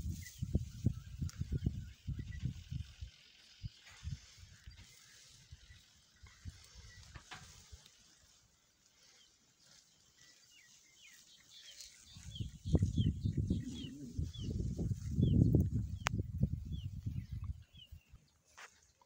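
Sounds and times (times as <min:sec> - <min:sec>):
wind rumble on microphone: 0:00.0 - 0:07.9, 0:11.8 - 0:18.2
bird chirping: 0:00.1 - 0:07.6, 0:09.0 - 0:18.9.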